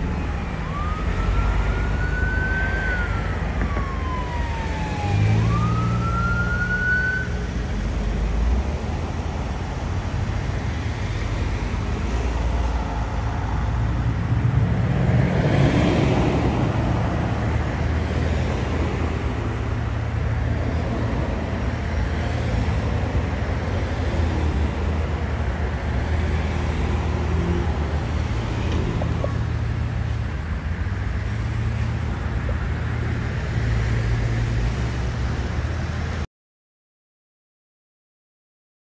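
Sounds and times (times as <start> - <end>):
emergency vehicle siren wailing: 0.0 - 8.0
heavy engines and traffic rumble: 0.0 - 36.3.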